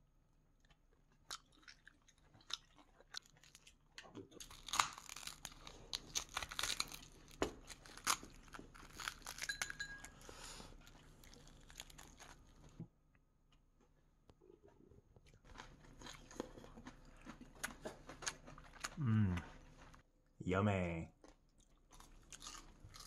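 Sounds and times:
crispy fish skin crackling: 4.4s - 9.5s.

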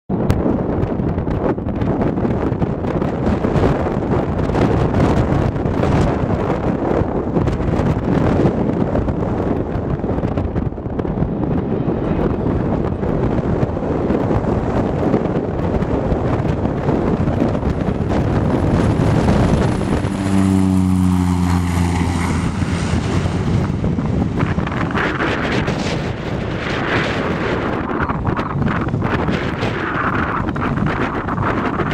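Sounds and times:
wind rumble on microphone: 0.1s - 31.9s
propeller buzzing drone: 1.0s - 31.9s
high turbine whine: 16.3s - 31.9s.

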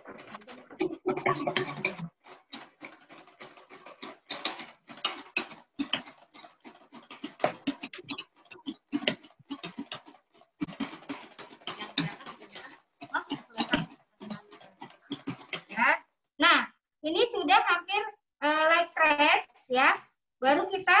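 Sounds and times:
spoon stirring in plastic bowl: 0.0s - 15.8s.

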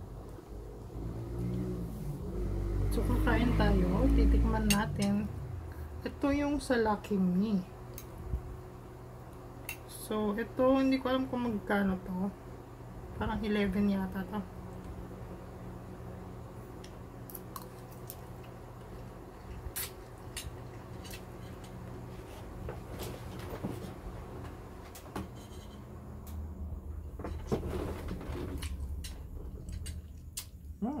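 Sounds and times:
steady low hum: 0.0s - 31.0s
person slurping and chewing noodles: 17.5s - 21.6s.

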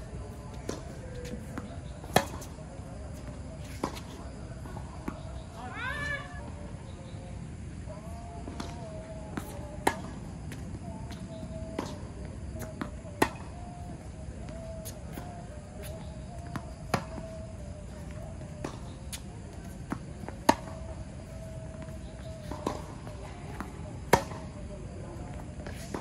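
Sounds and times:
rackets striking tennis ball: 0.6s - 2.5s, 22.2s - 24.5s.

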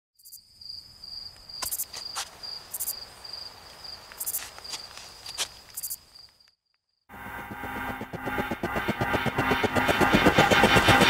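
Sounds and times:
crickets chirping: 0.2s - 7.6s.

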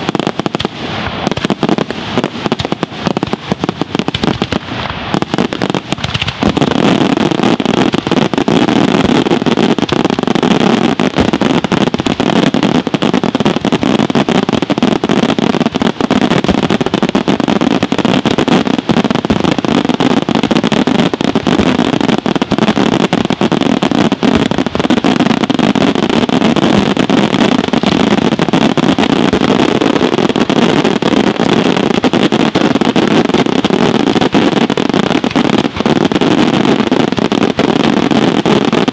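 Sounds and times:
crackling fireworks stars: 0.0s - 38.9s.

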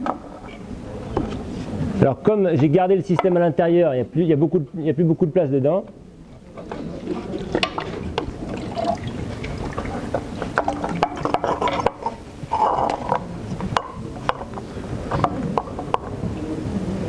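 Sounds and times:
water running and splashing: 6.8s - 11.1s.

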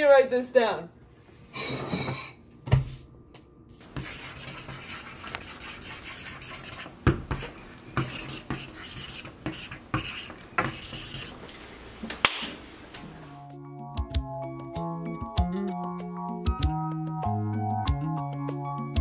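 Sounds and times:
marker writing on paper: 3.8s - 11.4s.

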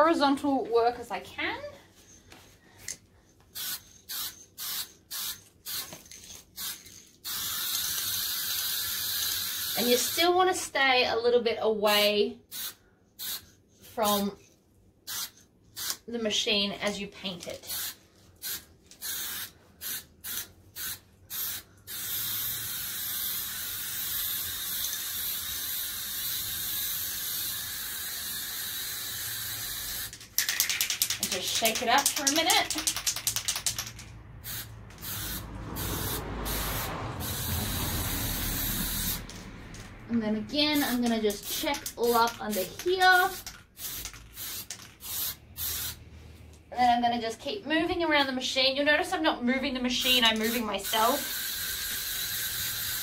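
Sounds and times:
aerosol spray can hissing: 3.5s - 10.2s, 12.5s - 14.2s, 15.1s - 16.0s, 17.7s - 39.4s, 40.8s - 46.0s, 50.4s - 53.0s.

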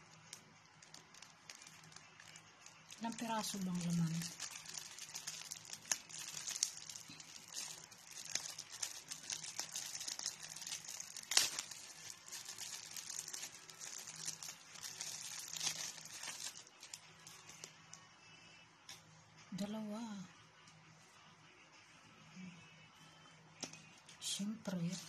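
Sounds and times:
plastic packaging crinkling: 0.0s - 18.0s.

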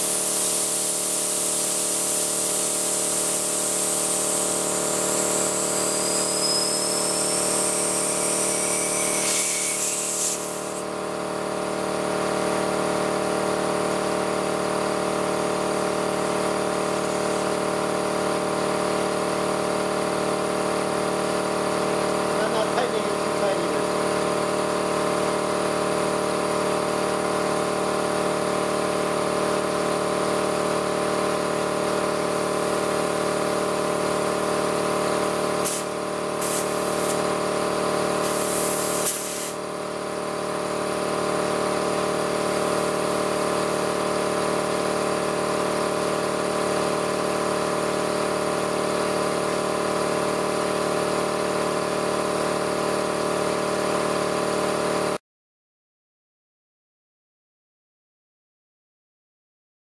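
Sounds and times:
air hissing from tire inflator: 0.0s - 11.0s, 32.2s - 39.7s, 42.0s - 44.0s
air compressor running: 0.0s - 55.2s.

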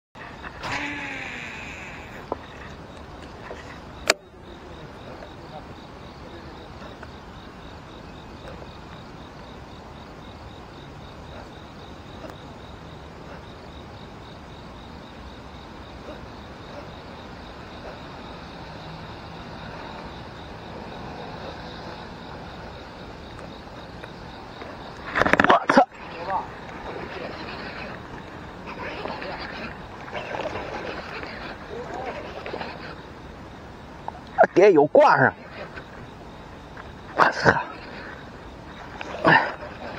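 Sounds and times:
insect chirping: 0.2s - 39.9s
bleat-like animal call: 0.6s - 2.2s.

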